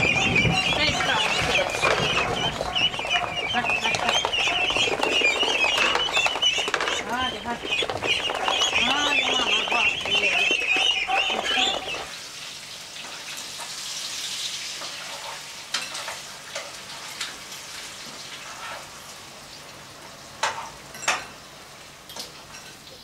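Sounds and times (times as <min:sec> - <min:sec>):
hen clucking: 0:00.0 - 0:12.2.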